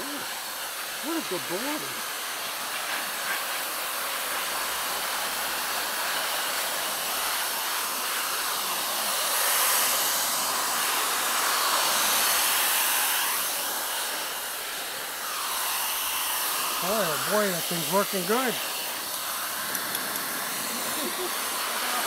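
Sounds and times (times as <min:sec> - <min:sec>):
pet dryer blowing air: 0:00.0 - 0:22.0.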